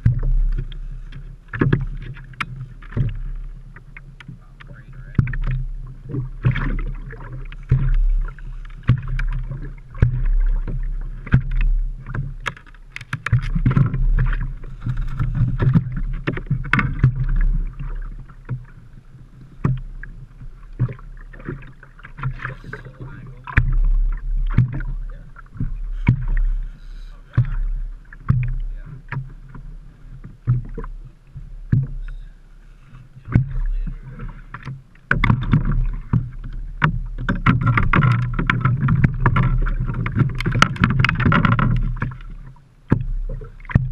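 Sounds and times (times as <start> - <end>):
low thumps: 0.0 - 3.6, 4.3 - 18.8, 19.6 - 32.3, 33.2 - 43.9
waves slapping boat hull: 0.0 - 43.9
sharp knocks and rattles: 7.5 - 18.7, 34.5 - 42.3.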